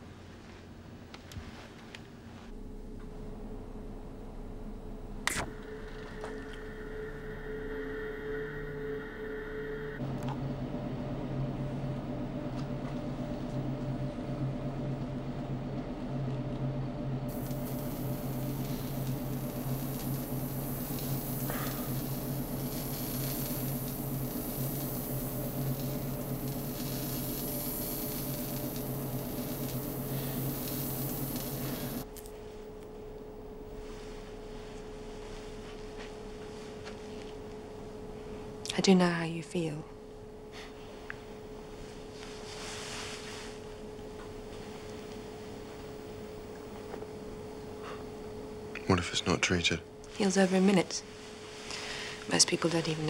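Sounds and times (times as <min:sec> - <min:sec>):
electronic hum: 0:02.5 - 0:34.0
low electronic drone: 0:02.6 - 0:15.6, 0:17.2 - 0:32.1
hissy high layer: 0:17.3 - 0:32.2.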